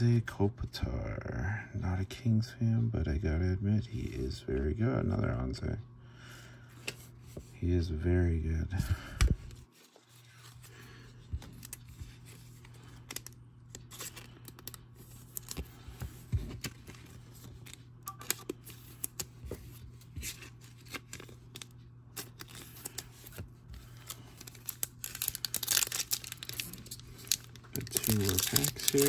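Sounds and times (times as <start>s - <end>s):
foil pack crinkling: 9.6s - 29.0s
trading cards flipping and clicking: 11.3s - 29.0s.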